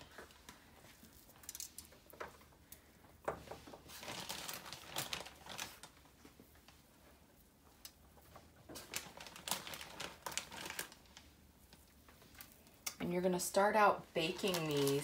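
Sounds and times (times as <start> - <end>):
plastic bag and foil crinkling: 1.0 - 2.6, 3.3 - 6.5, 7.8 - 12.8, 14.0 - 15.0.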